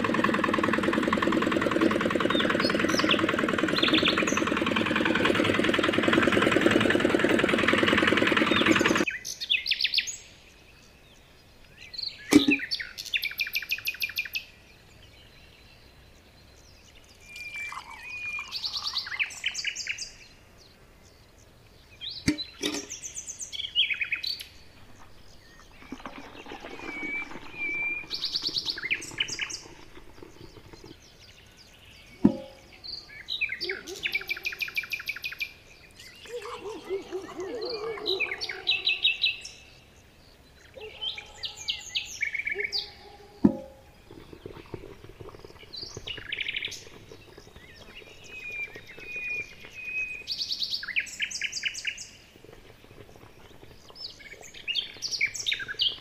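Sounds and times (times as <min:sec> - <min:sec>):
small electric motor running: 0:00.0 - 0:09.0
birds chirping trills: 0:00.0 - 0:56.0.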